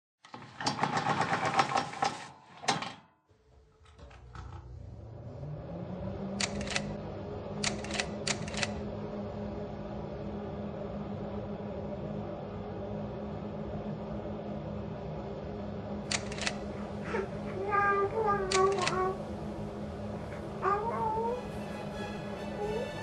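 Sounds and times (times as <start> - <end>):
rapid mechanical clatter: 0.3 - 2.3
machine hum rising in pitch: 4.0 - 23.0
sharp clicks: 6.4 - 6.9, 7.6 - 8.8, 16.1 - 16.6.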